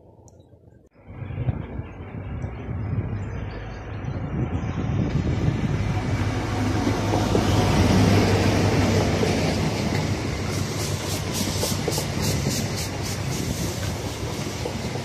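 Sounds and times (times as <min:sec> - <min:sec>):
diesel train engine humming: 0:01.0 - 0:15.0
train wheels clicking over rail joints: 0:06.1 - 0:15.0.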